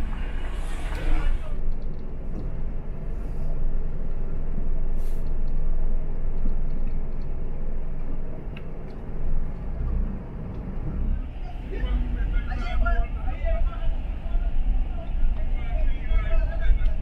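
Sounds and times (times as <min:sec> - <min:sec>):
car driving rumble: 0:00.0 - 0:17.0.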